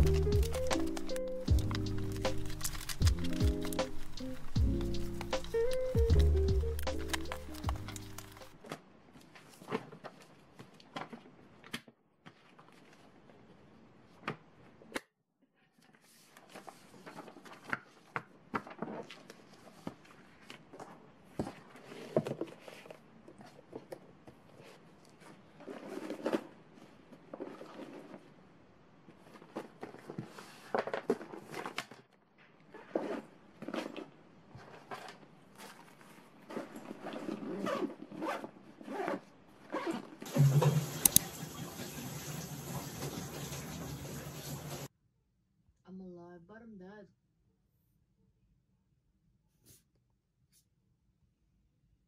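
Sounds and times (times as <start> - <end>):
zipper being pulled: 0.0 - 8.6, 32.7 - 34.1, 36.5 - 41.2
paper rustling and sliding: 0.0 - 11.2, 16.0 - 23.6, 29.1 - 32.0.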